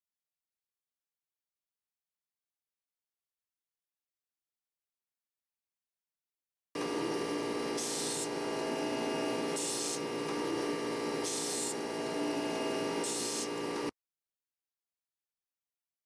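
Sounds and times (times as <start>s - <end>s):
grinder motor hum: 6.8s - 13.9s
grinding wheel hissing: 6.9s - 13.9s.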